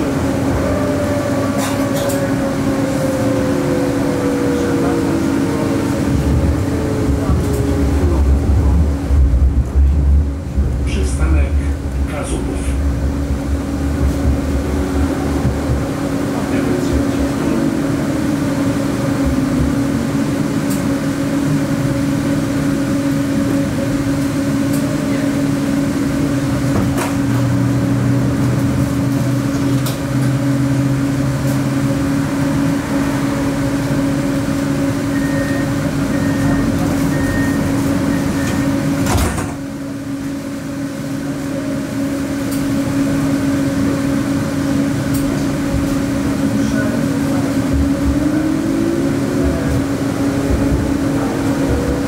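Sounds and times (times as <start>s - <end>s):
tram drive hum and rolling noise: 0.0s - 52.0s
short high beeps: 35.1s - 38.6s.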